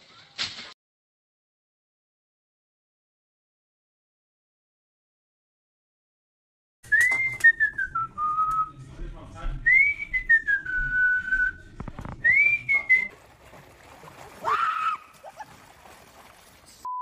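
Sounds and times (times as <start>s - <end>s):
person whistling: 6.9s - 8.7s, 12.2s - 13.1s.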